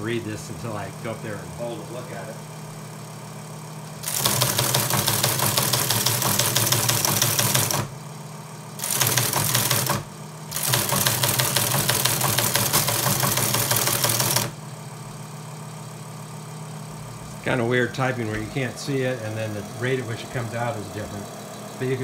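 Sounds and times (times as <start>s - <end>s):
teleprinter motor running: 0.0s - 22.0s
teleprinter typebars clattering: 4.0s - 7.9s, 8.8s - 14.6s.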